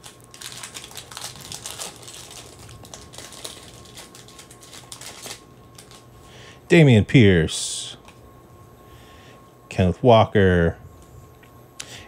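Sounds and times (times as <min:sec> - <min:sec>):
trading cards clicking and rustling: 0:00.0 - 0:06.1.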